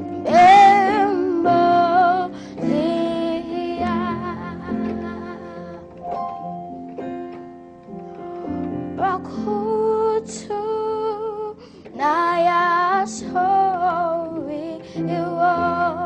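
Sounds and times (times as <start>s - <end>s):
instrumental accompaniment: 0.0s - 16.0s
boy singing gospel song: 0.2s - 6.0s, 9.0s - 16.0s.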